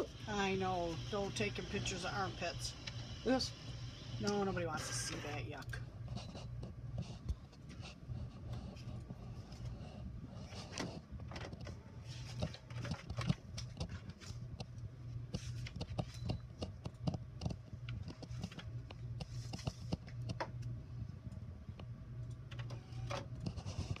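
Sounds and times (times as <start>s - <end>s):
inkjet printer printing: 0.0s - 7.2s, 22.5s - 24.0s.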